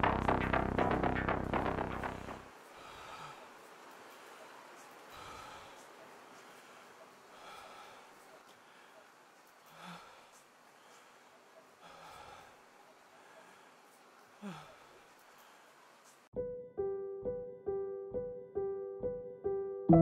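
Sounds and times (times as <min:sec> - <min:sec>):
person breathing slowly: 0:02.1 - 0:16.3.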